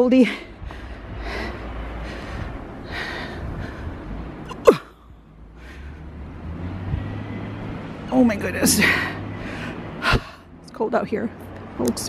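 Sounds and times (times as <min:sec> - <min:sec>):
low steady rumble: 0:00.0 - 0:11.5
wind rumbling on microphone: 0:00.5 - 0:04.5, 0:06.4 - 0:07.4.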